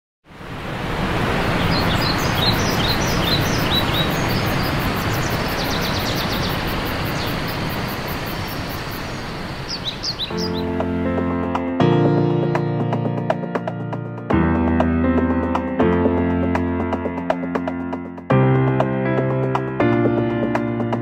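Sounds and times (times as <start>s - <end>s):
steady rushing noise: 0.3s - 11.0s
birds chirping: 0.6s - 11.0s.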